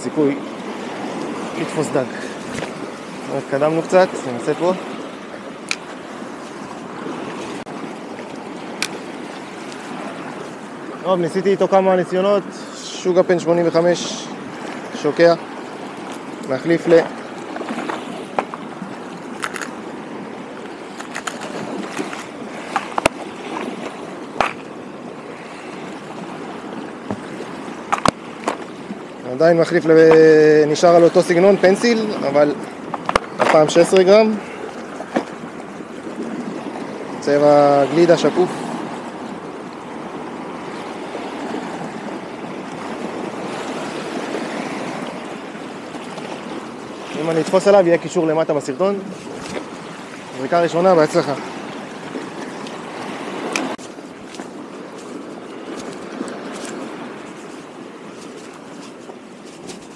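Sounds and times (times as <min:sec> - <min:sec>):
water lapping at shore: 0:00.0 - 0:59.9
fishing tackle clicking: 0:05.6 - 0:05.9, 0:08.8 - 0:09.0, 0:18.4 - 0:19.8.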